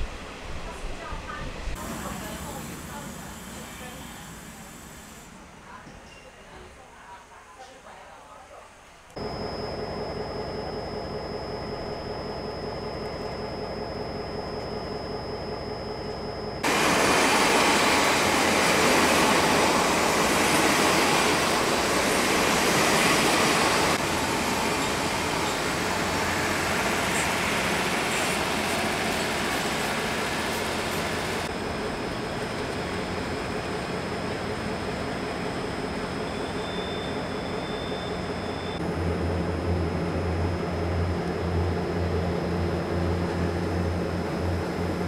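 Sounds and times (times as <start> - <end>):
train passing: 16.6 - 36.2.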